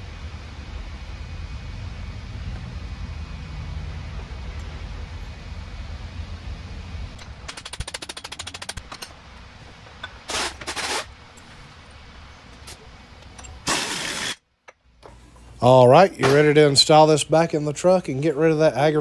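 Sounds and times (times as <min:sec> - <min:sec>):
air impact wrench bursts: 0:07.2 - 0:14.4
rapid clicks: 0:07.2 - 0:14.4.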